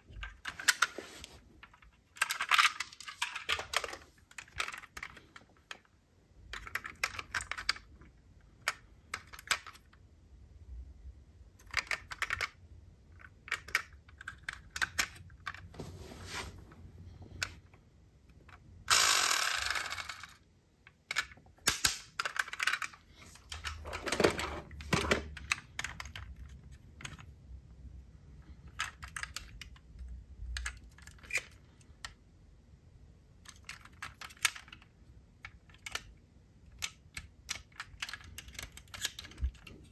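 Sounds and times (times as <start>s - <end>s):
diecast model cars clicking and rattling: 6.5s - 7.9s, 18.5s - 24.1s, 33.4s - 36.1s, 36.7s - 39.9s.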